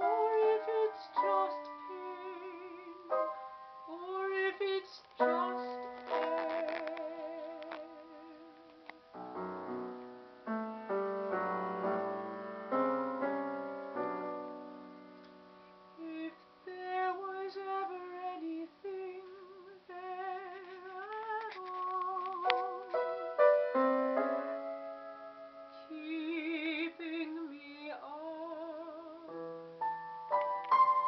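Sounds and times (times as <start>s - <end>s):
woman singing operatically: 0.0s - 3.2s, 3.9s - 8.9s, 16.0s - 22.8s, 25.8s - 29.4s
piano chords: 0.0s - 18.4s, 22.2s - 31.0s.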